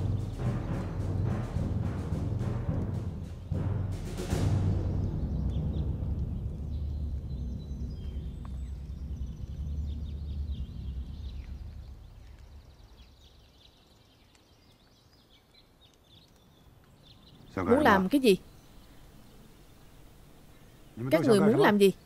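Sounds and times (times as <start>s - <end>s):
low drum rumble: 0.0s - 13.2s
small birds chirping: 0.0s - 22.0s.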